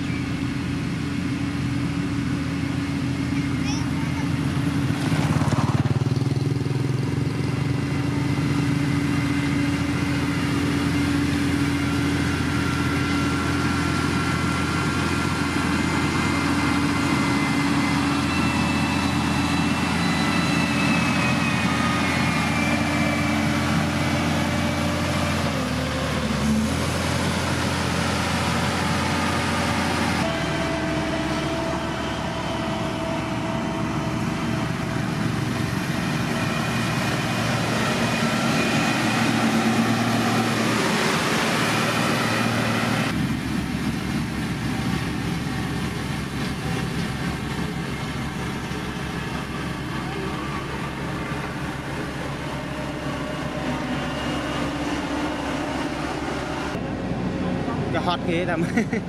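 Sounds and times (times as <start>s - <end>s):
diesel engine running: 0.0s - 59.0s
small motorbikes passing: 3.5s - 9.2s.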